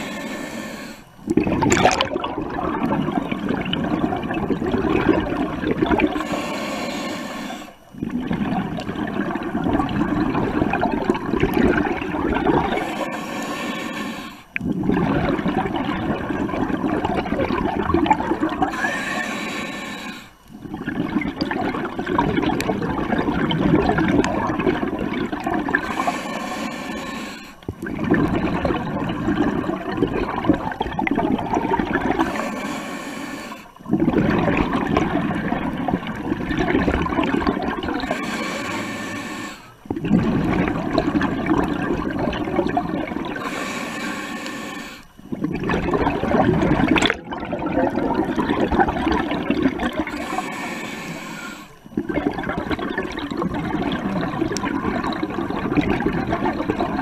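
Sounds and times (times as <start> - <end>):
scuba regulator inhalation hiss: 0.0 - 1.1, 5.9 - 7.8, 12.7 - 14.5, 18.5 - 20.4, 25.7 - 27.6, 32.1 - 33.8, 38.0 - 39.9, 43.3 - 45.1, 50.0 - 51.8
exhaust bubbles rushing: 1.3 - 6.2, 8.0 - 12.9, 14.6 - 18.7, 20.6 - 25.9, 27.7 - 32.2, 33.8 - 38.2, 39.9 - 43.4, 45.3 - 50.2, 51.9 - 57.0.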